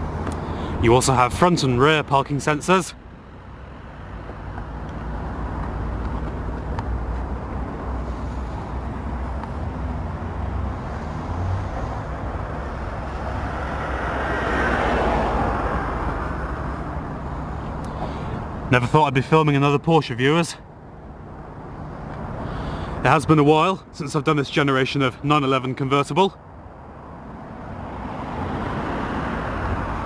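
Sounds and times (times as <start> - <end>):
low traffic rumble: 0.0 - 30.0
vehicle passing: 3.3 - 18.7, 26.9 - 30.0.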